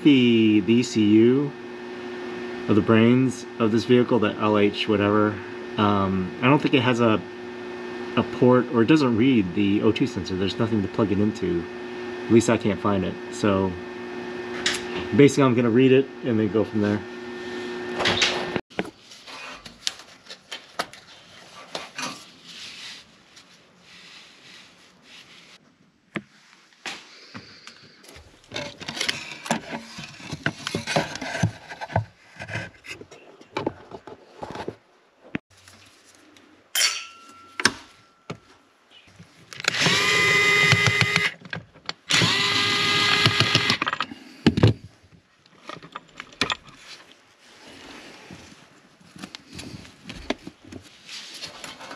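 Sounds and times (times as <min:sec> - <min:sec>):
knocks and rattles of tools: 0:39.1 - 0:47.1
impact driver on screws: 0:39.6 - 0:41.4, 0:42.1 - 0:43.9.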